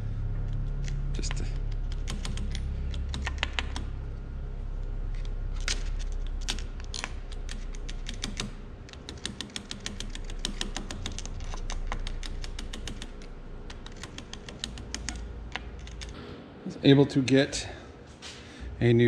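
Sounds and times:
screwdriver clicking on steel: 6.4 - 16.2.

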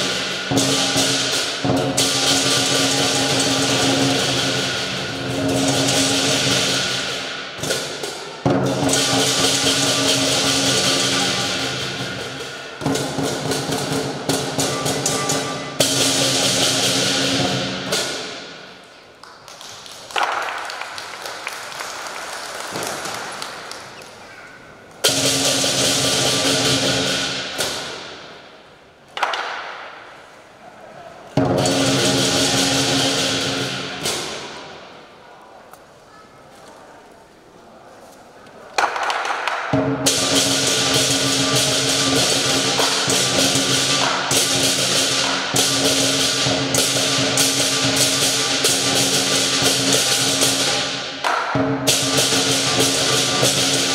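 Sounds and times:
lion dance drum: 0.0 - 18.8, 25.0 - 28.4, 31.4 - 34.9, 38.8 - 53.9.

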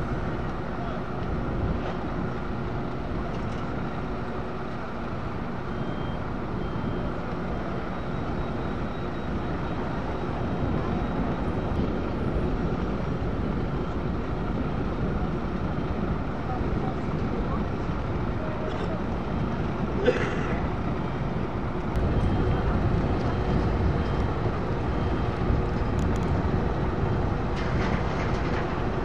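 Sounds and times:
diesel engines rumbling: 0.0 - 29.0
faint short beeps: 5.6 - 10.3.

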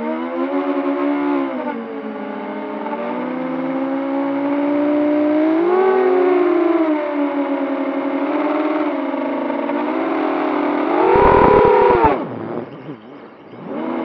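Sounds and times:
drone motors and propellers whining: 10.6 - 14.0.

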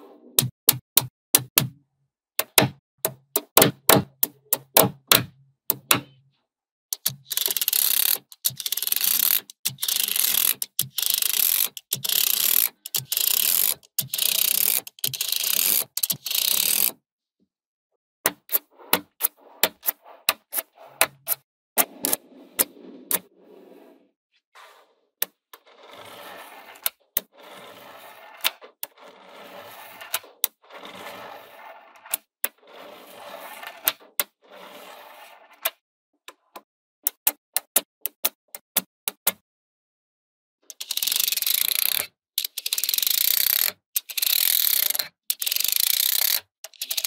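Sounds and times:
magnetic balls clacking: 7.0 - 16.9.

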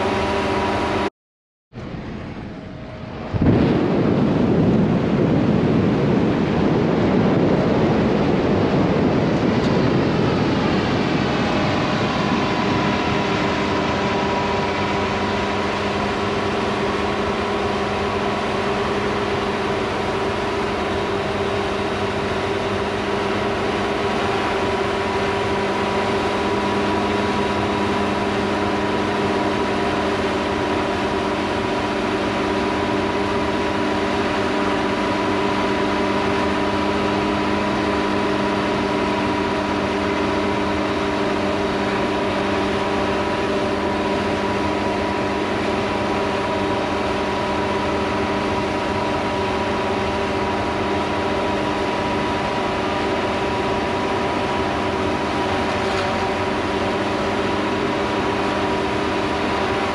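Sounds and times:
drone propellers humming: 0.0 - 1.1, 1.7 - 59.9.

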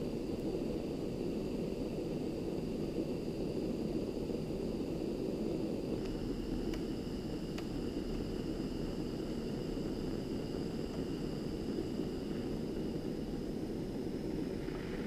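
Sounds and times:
gas torch flame rushing: 0.0 - 15.0.

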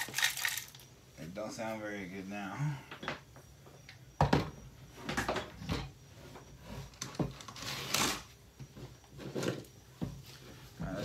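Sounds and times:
plastic parts knocking and clattering: 0.0 - 0.8.

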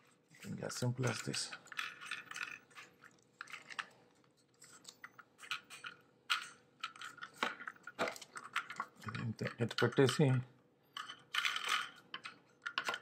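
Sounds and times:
plastic parts clicking and rattling: 0.0 - 13.0.

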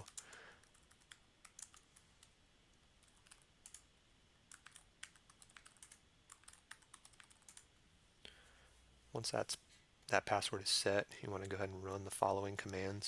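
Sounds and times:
faint keyboard typing: 0.0 - 7.7, 11.2 - 13.0.

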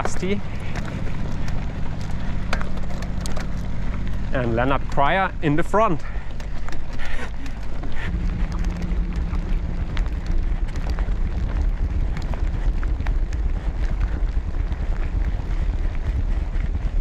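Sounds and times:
bike tyres on gravel: 0.0 - 17.0
stones and bike rattling: 0.0 - 17.0
wind noise on microphone: 6.0 - 17.0.

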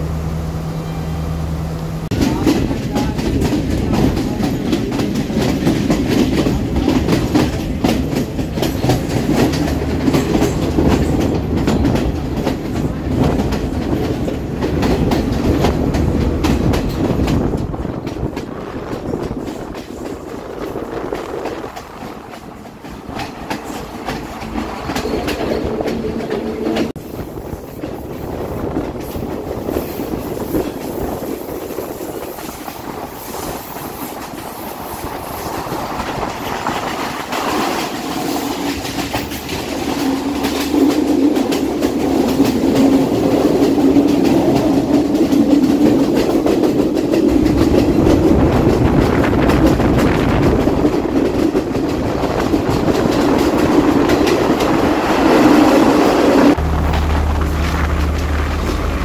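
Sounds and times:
train wheels clattering over rails: 2.0 - 59.0.

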